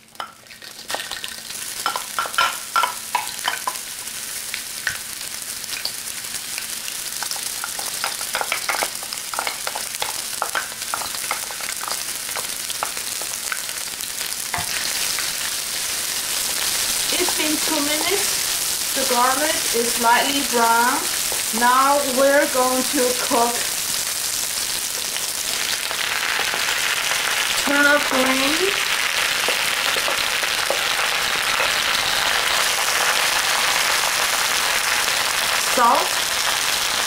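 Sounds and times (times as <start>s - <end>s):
onion and garlic sizzling in oil: 0.0s - 37.0s
spatula tapping wok: 1.8s - 3.8s.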